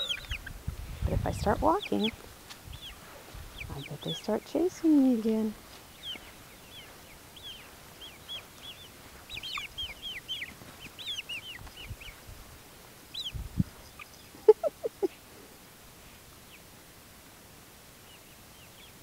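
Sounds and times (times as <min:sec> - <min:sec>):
chicks peeping: 0:00.0 - 0:15.6, 0:18.0 - 0:19.0.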